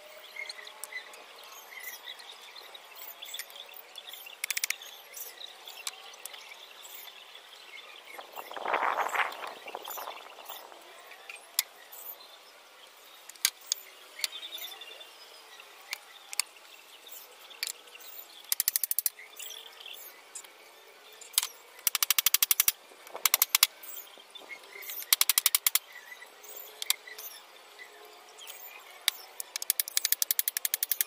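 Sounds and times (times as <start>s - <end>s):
faint bird chirps: 0.0s - 22.7s
rapid clicking bursts: 18.5s - 19.1s, 21.4s - 23.7s, 24.8s - 25.8s, 29.1s - 31.0s.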